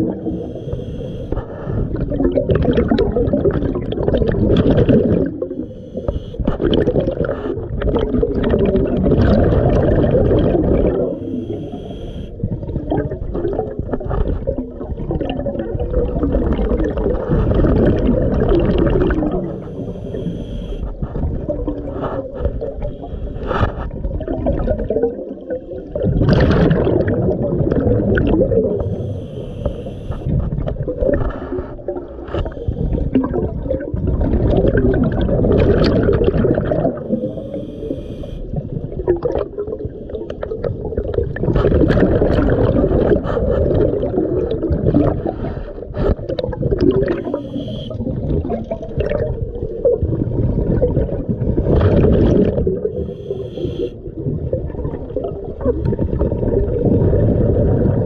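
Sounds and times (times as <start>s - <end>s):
diver breathing through regulator: 0.0s - 2.2s, 5.2s - 7.8s, 10.4s - 12.4s, 18.7s - 24.0s, 28.7s - 33.6s, 36.8s - 38.6s, 43.0s - 48.2s, 52.8s - 54.0s
gurgling exhaled bubbles: 0.0s - 58.0s.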